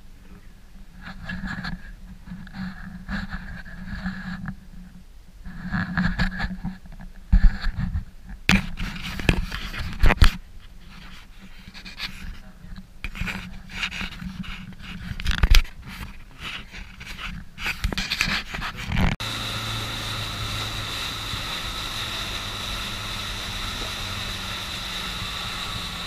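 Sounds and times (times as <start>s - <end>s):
wind: 0.0s - 26.0s
close rustling and handling noise: 5.4s - 19.2s
small boat engine droning: 19.2s - 26.0s
water rushing: 19.2s - 26.0s.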